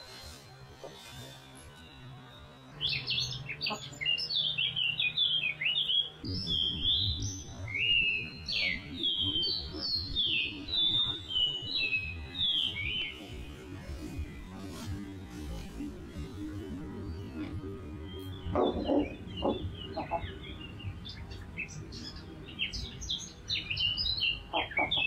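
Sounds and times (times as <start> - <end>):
songbirds chirping: 0.0 - 25.0.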